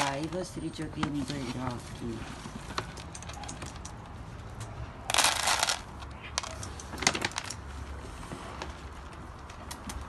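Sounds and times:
kibble rattling: 5.1 - 7.6.

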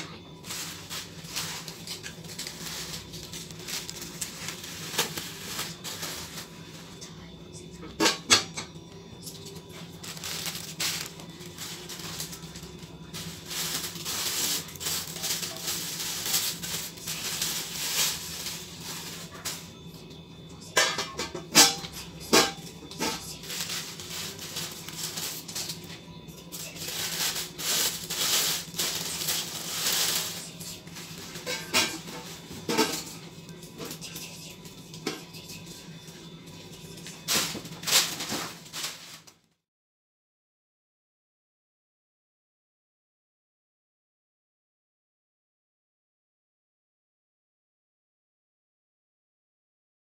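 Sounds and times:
rustling: 0.4 - 6.6, 10.0 - 19.6, 26.6 - 32.9
glass dishes clinking on metal: 8.0 - 8.8.

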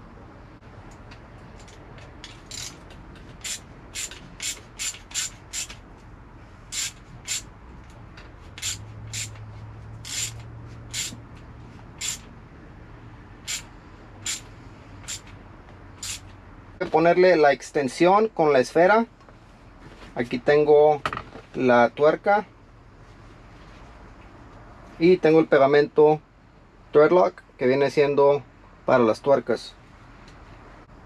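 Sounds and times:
ratchet wrench strokes: 1.6 - 5.8, 6.7 - 7.5, 8.5 - 9.4, 10.0 - 11.2, 11.9 - 12.3, 13.4 - 15.4, 16.0 - 16.4.

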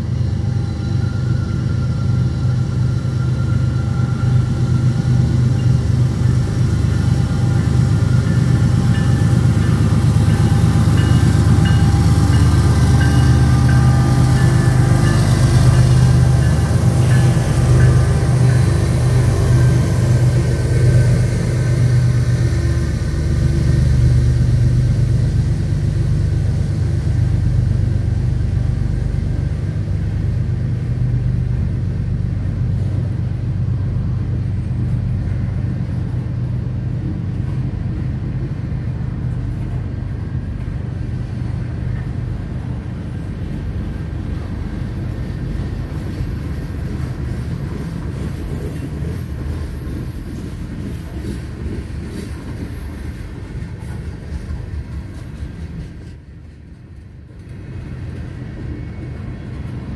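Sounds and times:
diesel locomotive rumble: 0.0 - 59.9
high-pitched wheel squeal: 43.0 - 56.0.

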